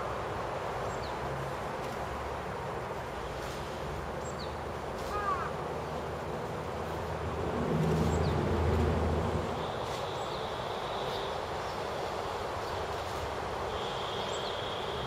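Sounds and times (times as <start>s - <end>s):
background hiss: 0.0s - 15.0s
passing vehicle rumble: 5.6s - 11.9s
bird call: 13.7s - 15.0s.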